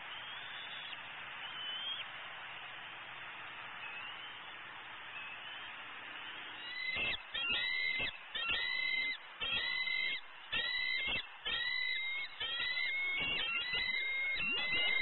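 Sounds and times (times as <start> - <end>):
eagle high chittering call: 6.6 - 15.0.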